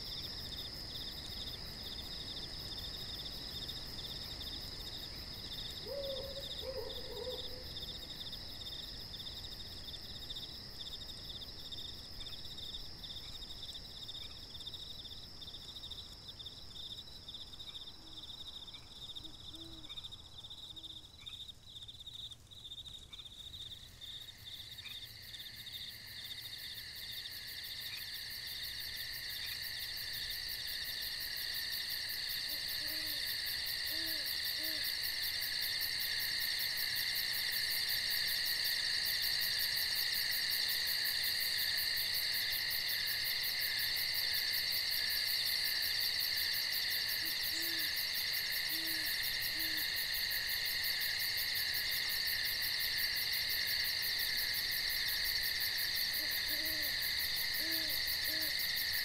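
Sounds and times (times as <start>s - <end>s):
crickets and insects trilling: 0.0s - 59.0s
owl hooting: 5.8s - 7.7s, 32.5s - 33.2s, 33.8s - 34.9s, 47.3s - 47.9s, 56.2s - 57.0s, 57.6s - 58.6s.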